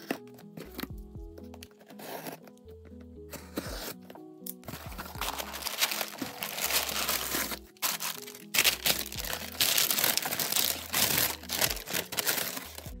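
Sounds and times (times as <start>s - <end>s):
background music with bass: 0.0s - 13.0s
cardboard box opening: 4.6s - 13.0s
packing paper crinkling: 4.7s - 13.0s.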